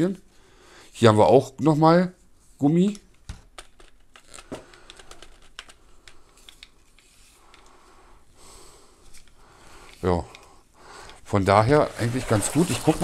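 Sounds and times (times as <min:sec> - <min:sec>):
cable rustling: 0:02.4 - 0:07.8, 0:08.9 - 0:13.0.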